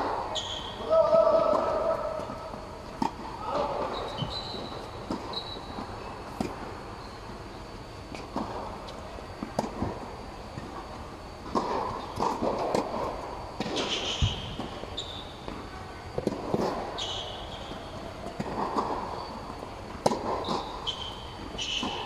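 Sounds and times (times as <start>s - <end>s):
background hum: 0.0s - 22.0s
sneakers squeaking on court: 3.8s - 6.4s, 13.8s - 15.5s, 20.4s - 22.0s.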